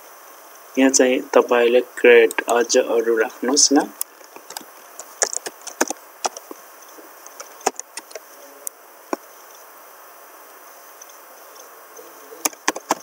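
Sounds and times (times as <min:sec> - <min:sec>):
computer keyboard keys clicking: 0:12.4 - 0:13.0.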